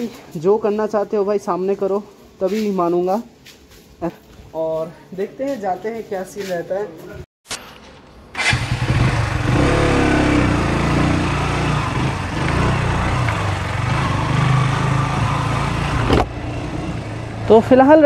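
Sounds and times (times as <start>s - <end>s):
motorcycle engine running at low revs: 8.5s - 17.6s.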